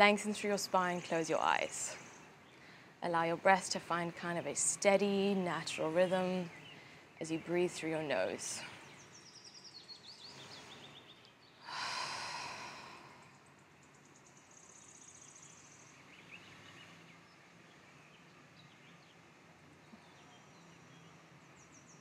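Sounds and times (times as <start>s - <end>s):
birds chirping faintly: 0.0s - 22.0s
long breath out: 10.2s - 11.0s, 11.6s - 13.4s.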